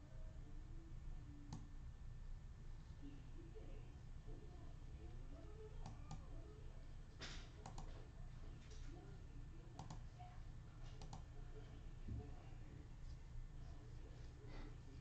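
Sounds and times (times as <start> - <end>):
low steady hum: 0.0 - 15.0
faint clicks and taps: 5.8 - 6.3, 7.1 - 11.3.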